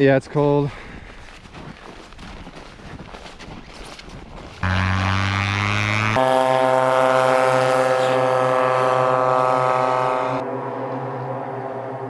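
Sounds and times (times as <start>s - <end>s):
propeller plane engine droning: 4.6s - 12.0s.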